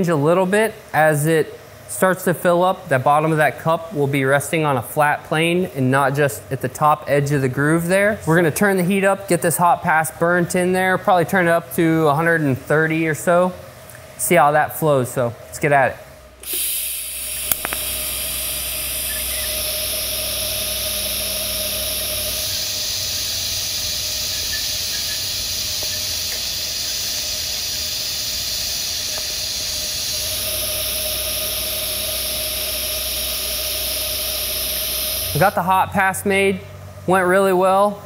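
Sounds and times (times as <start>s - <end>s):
welding arc hissing: 16.4s - 35.9s
sharp click: 17.4s - 17.9s.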